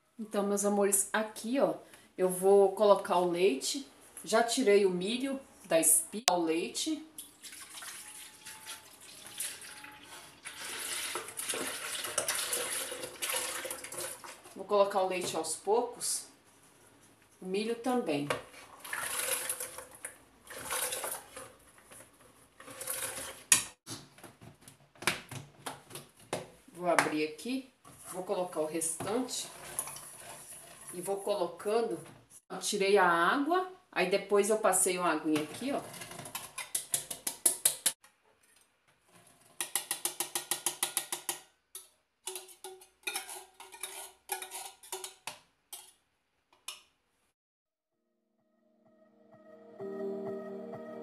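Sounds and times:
corn kernels pouring: 0:07.6 - 0:14.3, 0:18.8 - 0:19.9
tin can scraping on blender jar: 0:09.4 - 0:14.3, 0:18.6 - 0:21.9, 0:22.6 - 0:23.6, 0:43.0 - 0:45.2.

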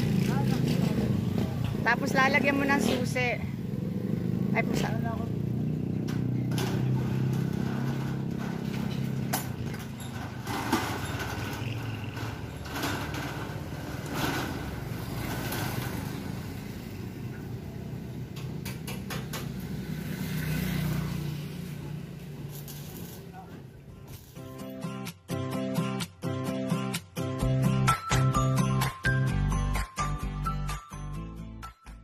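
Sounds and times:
engine humming: 0:00.0 - 0:24.3
roll-up shutter door rattling: 0:05.3 - 0:16.8.

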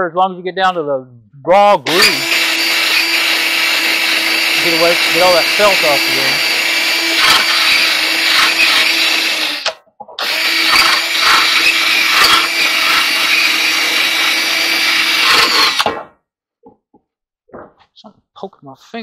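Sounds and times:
cordless drill scraping metal rim: 0:01.9 - 0:15.9.

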